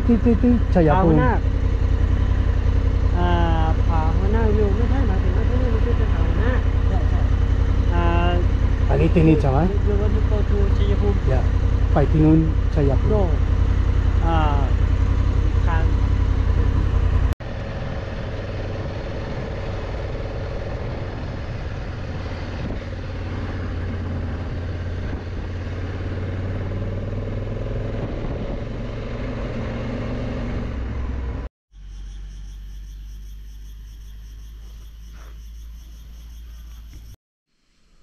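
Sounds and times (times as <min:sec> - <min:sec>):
low hum: 0:00.0 - 0:33.8
motorcycle engine and road rumble: 0:00.0 - 0:37.2.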